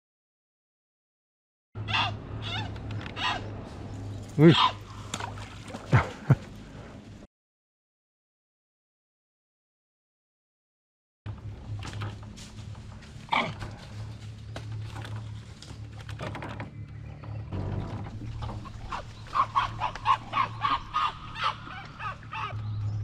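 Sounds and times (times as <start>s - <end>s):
wild animal crying: 1.8s - 3.5s, 4.4s - 4.9s, 18.6s - 22.6s
low hum: 1.8s - 7.3s, 11.3s - 23.0s.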